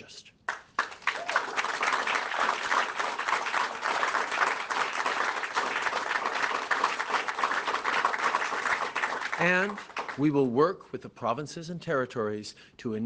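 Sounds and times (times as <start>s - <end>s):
crowd applause: 0.8s - 10.2s.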